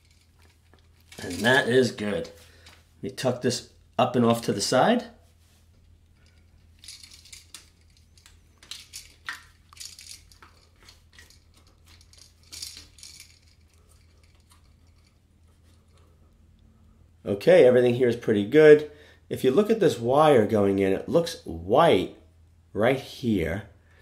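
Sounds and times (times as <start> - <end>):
electrical wires rustling and clicking: 0.0 - 16.7.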